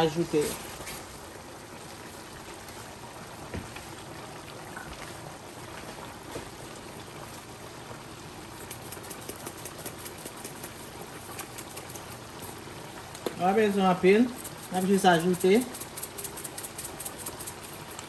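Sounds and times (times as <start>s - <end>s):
pot of liquid bubbling: 0.0s - 18.0s
faint crackly ticks: 8.6s - 13.4s.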